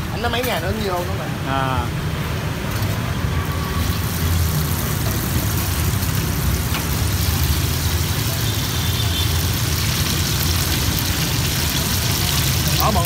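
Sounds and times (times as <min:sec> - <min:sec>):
hot oil sizzling: 0:03.5 - 0:13.0.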